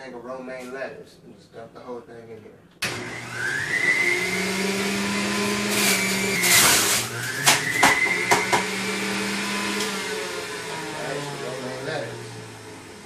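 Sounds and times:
electric juicer motor whining: 2.8 - 13.0
lettuce shredding in juicer: 2.9 - 13.0.

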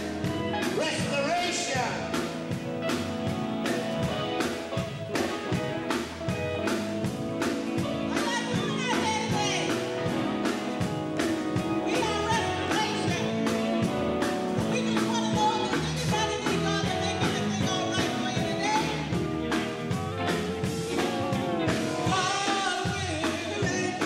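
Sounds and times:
drum kit beat: 0.0 - 24.0
electric guitars: 0.0 - 24.0.

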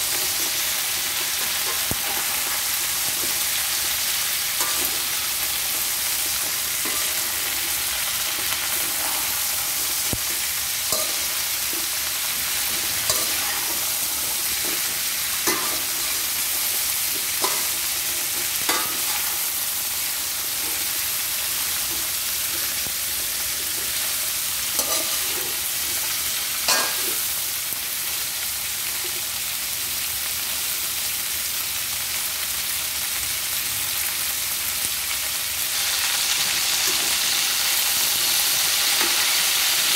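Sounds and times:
spatula scraping a wok: 0.0 - 27.4
food sizzling in a wok: 0.0 - 39.9.

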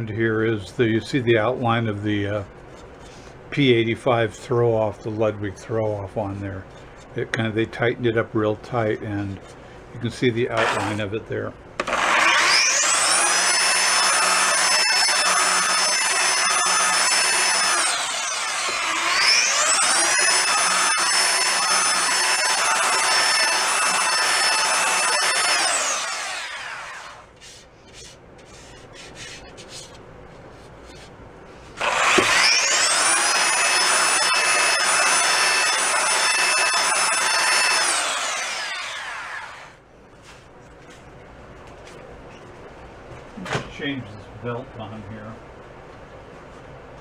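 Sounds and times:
belt sander whining on wood: 11.8 - 27.2, 31.8 - 39.7.

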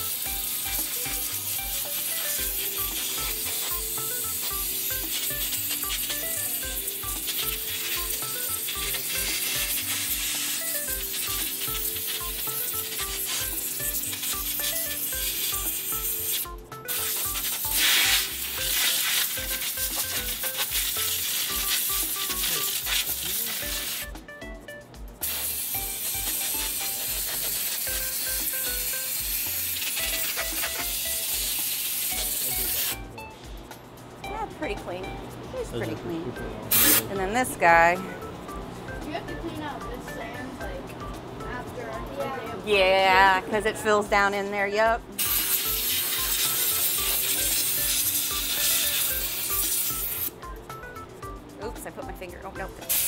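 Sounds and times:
air blow gun hissing: 0.0 - 24.1, 25.2 - 33.0, 36.7 - 37.1, 45.2 - 50.3
music with bass beat: 0.0 - 53.0.

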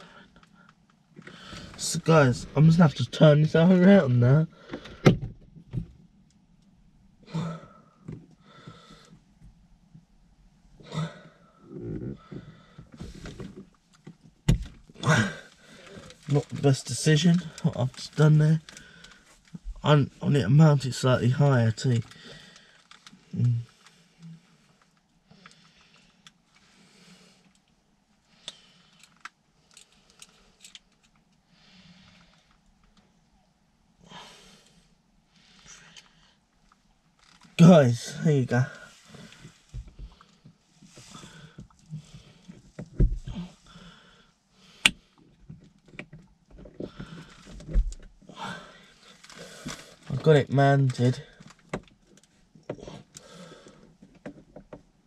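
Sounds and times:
breaths: 0.0 - 1.8, 4.5 - 5.1, 7.3 - 9.3, 10.8 - 13.6, 15.0 - 16.3, 18.6 - 19.5, 22.0 - 27.6, 28.2 - 30.8, 31.5 - 32.7, 34.0 - 36.5, 38.6 - 45.4, 46.8 - 47.7, 48.3 - 50.1, 52.7 - 54.2.

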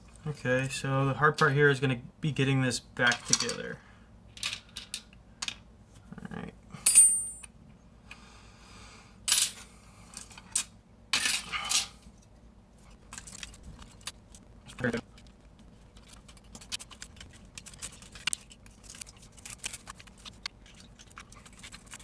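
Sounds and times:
small parts clicking and clacking: 13.1 - 22.0.

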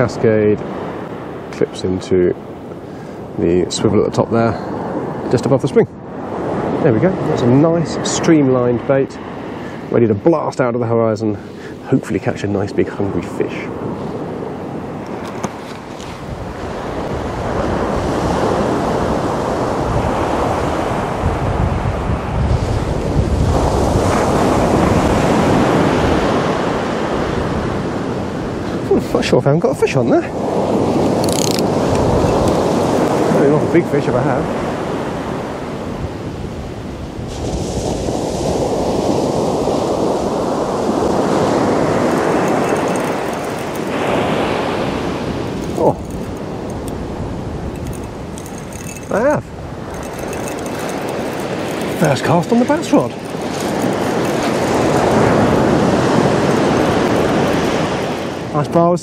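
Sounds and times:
surf washing onto beach: 0.0 - 59.0
wind buffeting microphone: 13.7 - 29.0, 30.1 - 58.6
tackle clicks: 31.0 - 33.2, 45.6 - 47.1, 47.8 - 49.2, 49.9 - 52.2
surf breaking on beach: 37.2 - 48.4, 50.9 - 58.8.

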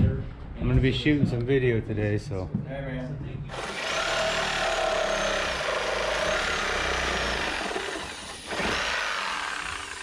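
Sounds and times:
reciprocating saw cutting wood: 3.5 - 10.0.

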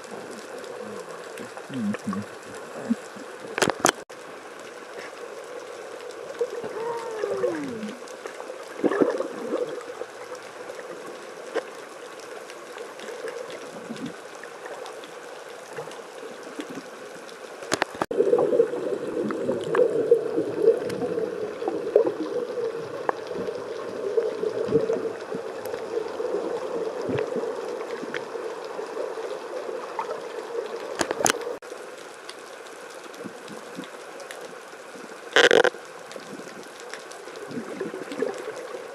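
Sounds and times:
underwater gurgling and bubbling: 0.0 - 4.0, 4.8 - 31.6, 34.8 - 38.9
sharp clicks: 35.4 - 35.7.

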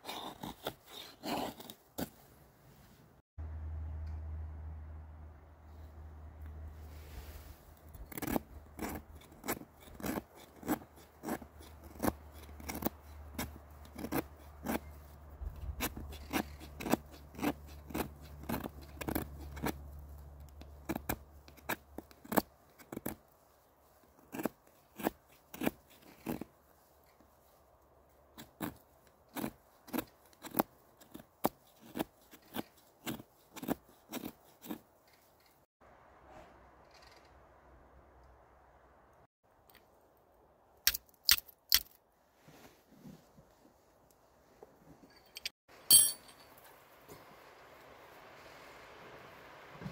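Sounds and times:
knife scraping wood: 0.0 - 2.2, 6.9 - 35.6.

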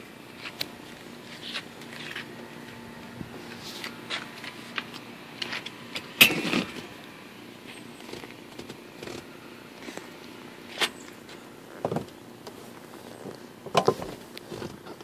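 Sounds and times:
clicks and rustles of seat hardware: 8.0 - 9.3, 10.7 - 15.0.

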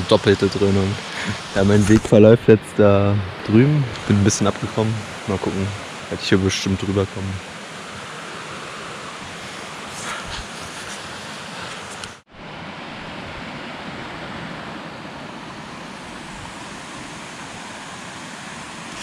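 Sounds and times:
stream cascading over rocks: 0.0 - 12.2.

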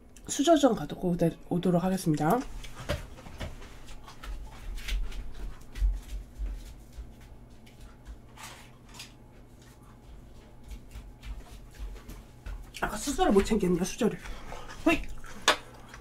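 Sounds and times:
faint steady hum: 0.0 - 16.0
muffled footsteps: 2.2 - 15.0.

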